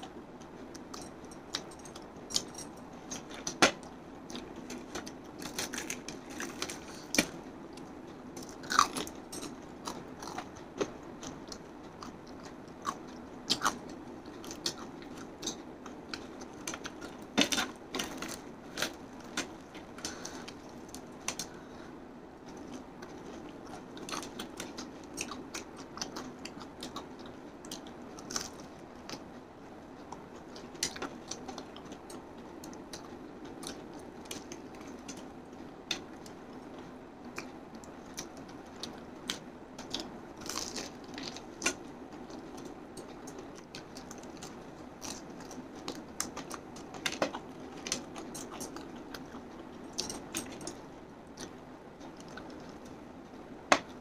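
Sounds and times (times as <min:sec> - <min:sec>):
low background noise: 0:00.0 - 0:54.0
person chewing crunchy food: 0:00.1 - 0:21.8, 0:22.5 - 0:29.2, 0:37.4 - 0:53.0.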